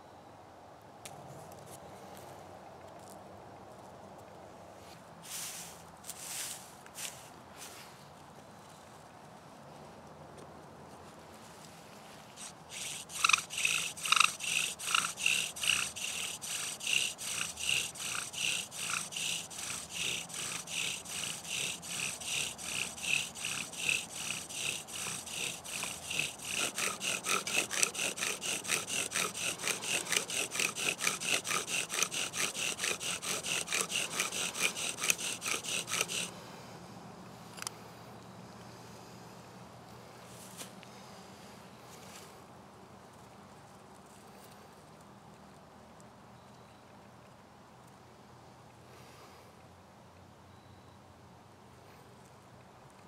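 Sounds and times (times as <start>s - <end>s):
bow drill squeaky rubbing squeal: 12.4s - 36.3s.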